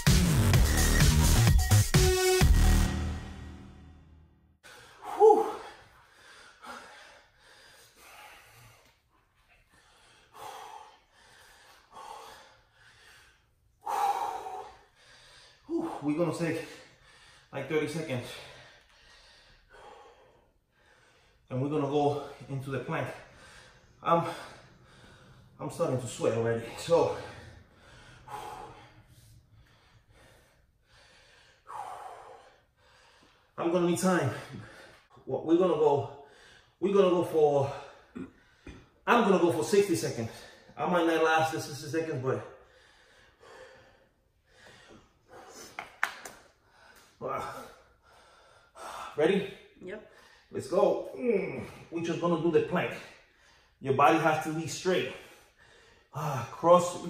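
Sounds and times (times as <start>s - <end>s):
man breathing hard: 4.6s - 17.6s, 18.2s - 21.5s, 22.1s - 33.6s, 34.2s - 35.3s, 36.1s - 36.8s, 42.2s - 50.6s, 55.1s - 57.0s.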